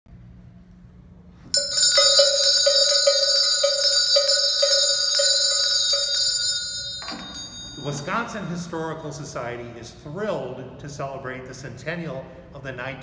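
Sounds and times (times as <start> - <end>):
brass handbells ringing: 1.5 - 8.4.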